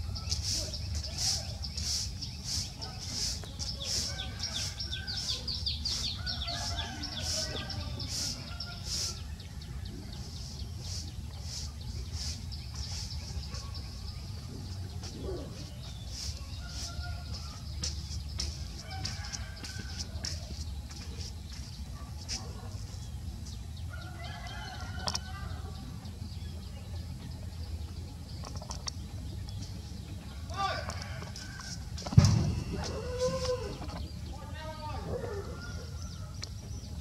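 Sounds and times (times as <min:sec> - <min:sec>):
birds chirping: 0:00.0 - 0:37.0
low outdoor rumble: 0:00.0 - 0:37.0.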